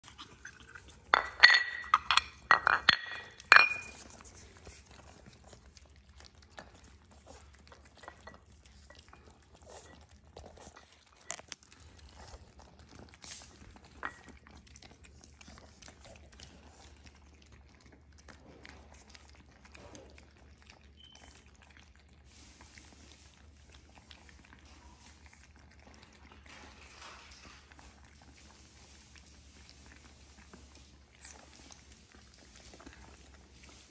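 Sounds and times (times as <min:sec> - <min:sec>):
puppies chewing: 0:00.0 - 0:33.9
ceramic bowls clinking: 0:00.4 - 0:04.2, 0:07.8 - 0:09.9, 0:13.9 - 0:14.4.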